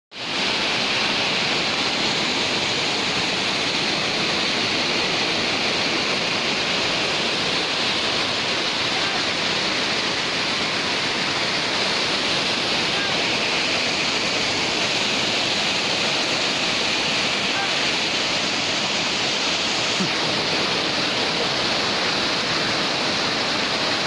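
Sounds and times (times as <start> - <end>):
waterfall rushing: 0.1 - 24.0.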